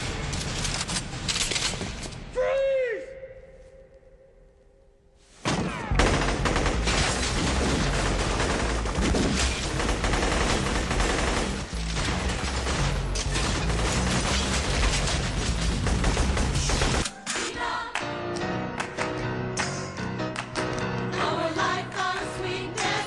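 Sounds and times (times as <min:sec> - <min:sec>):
rapid gunfire: 0:05.5 - 0:17.1
music: 0:09.6 - 0:23.0.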